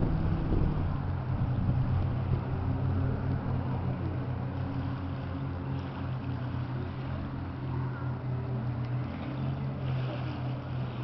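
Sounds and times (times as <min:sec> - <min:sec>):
wind noise on microphone: 0:00.0 - 0:03.7
jet ski engines droning: 0:00.0 - 0:11.0.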